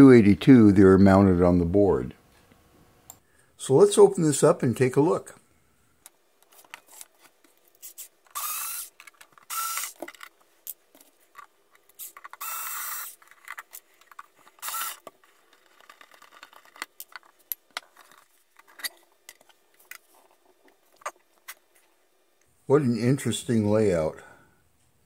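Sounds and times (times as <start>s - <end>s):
electric screwdriver whirring: 8.3s - 10.1s, 12.0s - 13.2s, 14.6s - 15.1s.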